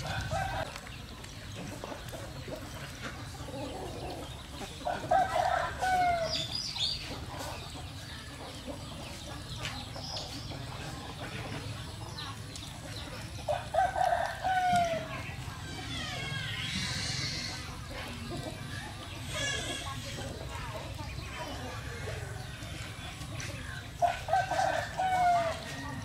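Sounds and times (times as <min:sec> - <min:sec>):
rooster crowing: 0:04.9 - 0:06.4, 0:24.2 - 0:26.0.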